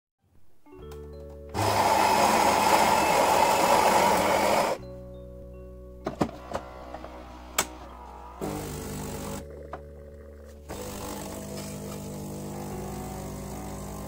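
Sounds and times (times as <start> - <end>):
espresso machine motor hum: 1.6 - 4.8, 6.8 - 9.8, 10.6 - 14.0
grinder grinding beans: 1.6 - 4.8, 10.7 - 14.0.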